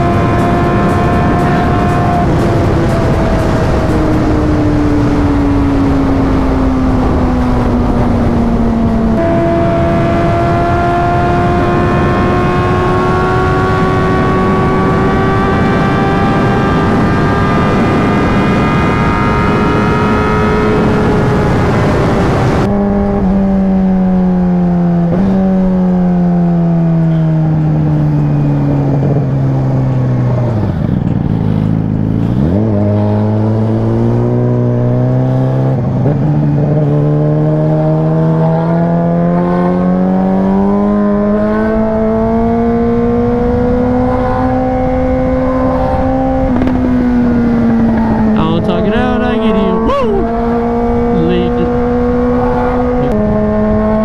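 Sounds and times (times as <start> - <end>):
motorcycle engine running: 0.0 - 21.4.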